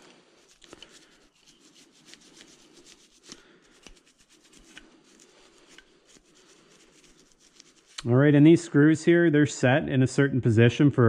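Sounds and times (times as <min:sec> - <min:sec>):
toothbrush scrubbing: 0:00.2 - 0:08.1.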